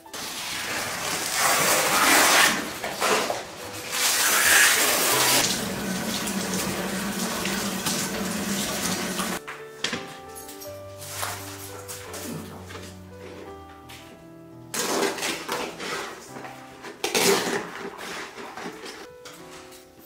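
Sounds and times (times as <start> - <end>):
tap water splashing into sink: 5.4 - 9.4.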